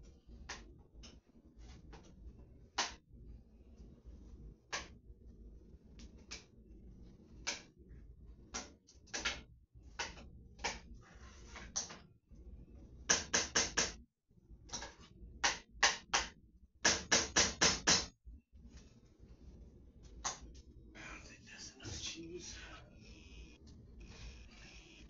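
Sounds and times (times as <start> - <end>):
low hum: 0.0 - 13.1
kitchen knocks and clacks: 16.9 - 18.1.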